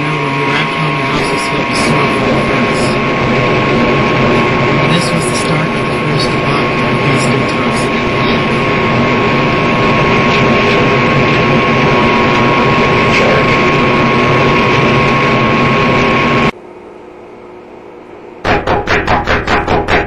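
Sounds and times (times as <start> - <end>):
machine rushing noise: 0.0 - 16.5
thin steady whine: 0.0 - 19.6.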